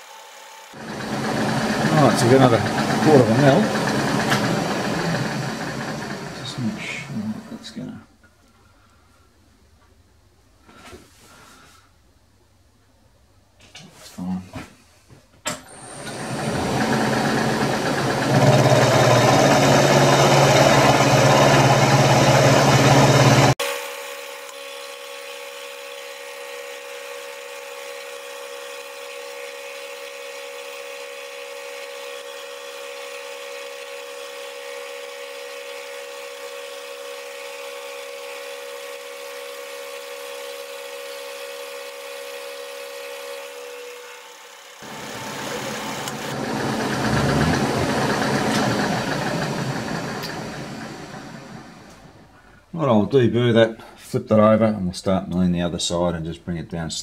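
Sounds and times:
end mill cutting metal: 0.0 - 7.8, 15.6 - 52.3
machine whine: 0.0 - 7.8, 15.6 - 52.5.

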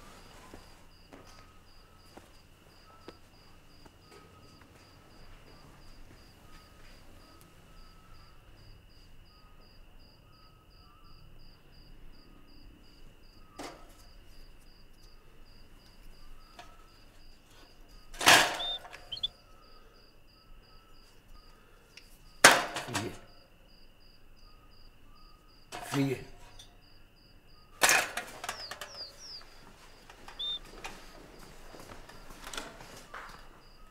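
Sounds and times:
crickets chirping: 0.0 - 33.9.

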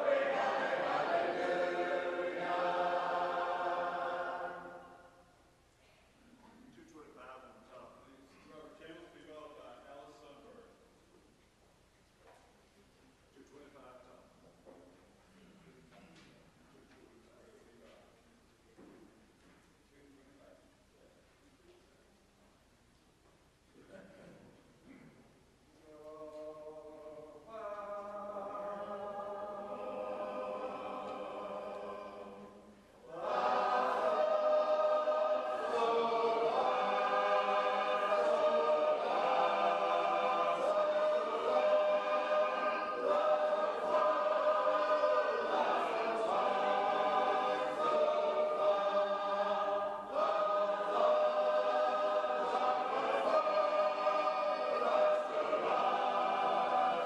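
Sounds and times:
unaccompanied group singing: 0.0 - 5.3, 25.8 - 57.0.

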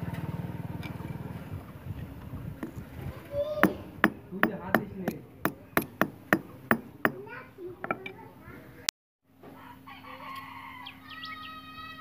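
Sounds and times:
low rattling hum: 1.5 - 7.3
hammer blows on metal: 3.6 - 7.3.

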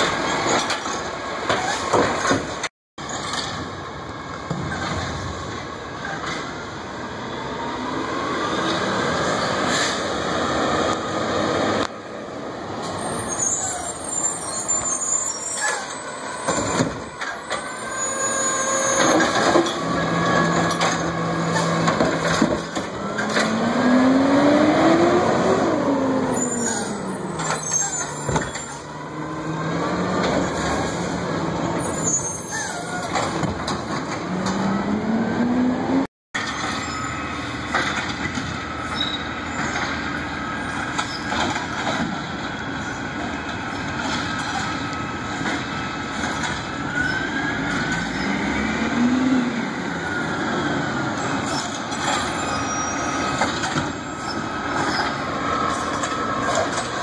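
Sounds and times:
garbage truck diesel engine: 0.0 - 57.0.

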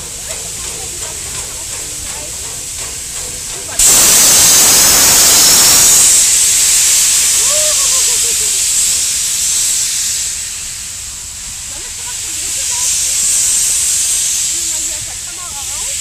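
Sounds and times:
steam locomotive hissing steam: 0.0 - 16.0.

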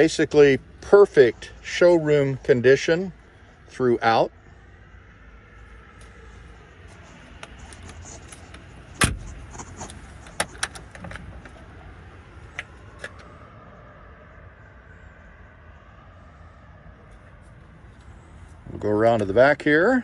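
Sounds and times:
low outdoor rumble: 0.0 - 20.0
car door latch clicks and knocks: 9.0 - 9.3.

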